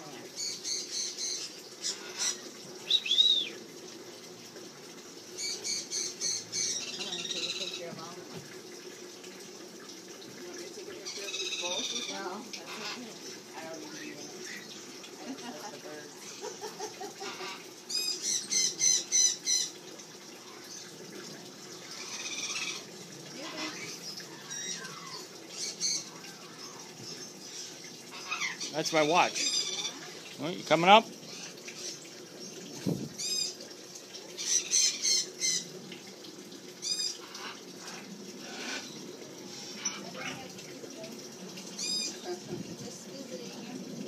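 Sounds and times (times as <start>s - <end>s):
parrot squawk: 17.2s - 19.7s, 22.0s - 22.8s, 28.1s - 30.1s
parrot squawking: 22.0s - 22.8s, 28.1s - 30.2s, 34.4s - 35.7s.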